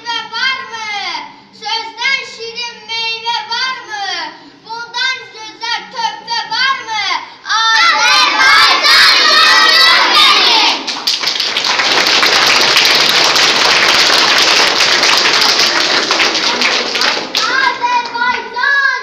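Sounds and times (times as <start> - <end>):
children shouting together: 7.5 - 10.9
children applauding and cheering: 7.8 - 18.5.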